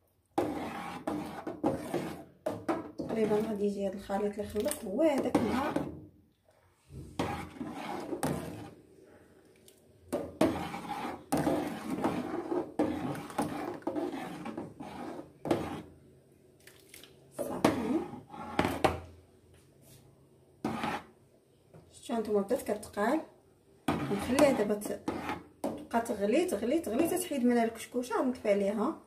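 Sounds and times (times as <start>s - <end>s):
metal ladle scraping a steel pot: 0.4s - 2.3s, 2.9s - 3.7s, 4.5s - 6.0s, 7.2s - 8.8s, 10.4s - 15.9s, 20.7s - 21.1s, 23.9s - 25.4s.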